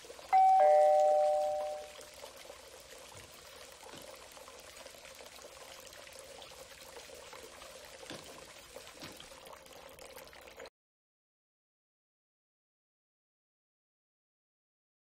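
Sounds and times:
water pouring into bathtub: 0.0 - 10.7.

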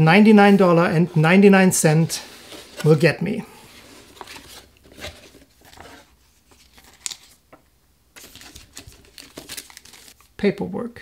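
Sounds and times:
cardboard and paper rustling: 2.2 - 7.4, 8.2 - 10.3.

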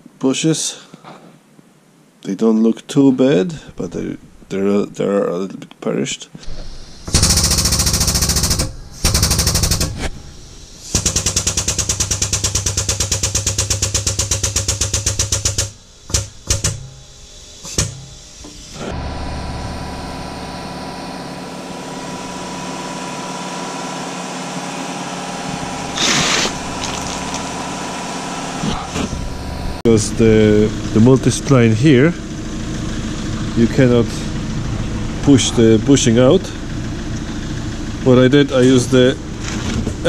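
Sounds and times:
steady machine hum: 3.5 - 5.3, 6.4 - 40.0
air tool rattling: 6.4 - 18.8, 25.5 - 28.7.

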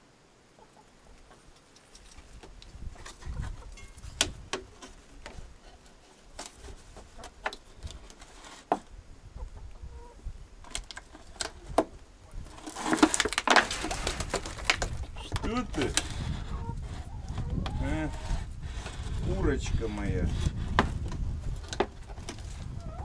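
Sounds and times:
hens clucking: 9.3 - 10.2, 13.7 - 19.5, 22.0 - 23.0.

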